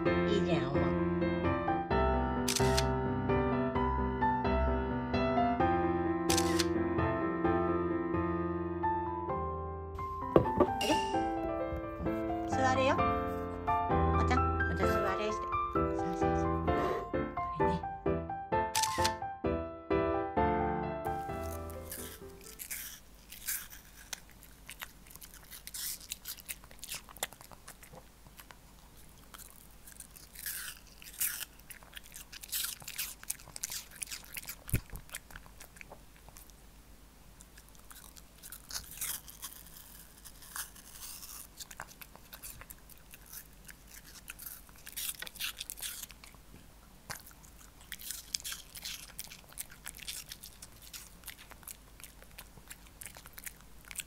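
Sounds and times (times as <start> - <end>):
dog crunching apple: 6.3 - 6.7, 18.8 - 19.2, 21.1 - 36.6, 37.4 - 54.0.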